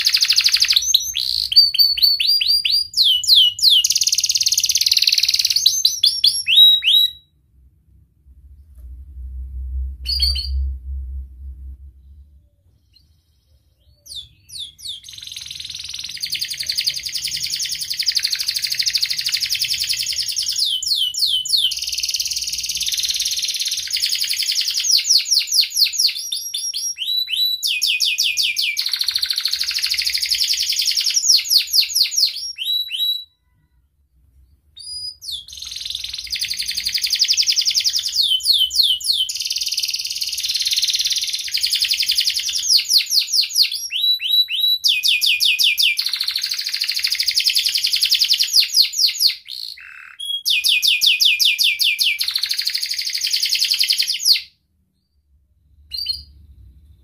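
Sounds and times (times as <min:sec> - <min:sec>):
canary singing trills: 0:00.0 - 0:07.3, 0:12.0 - 0:33.6, 0:34.8 - 0:54.5.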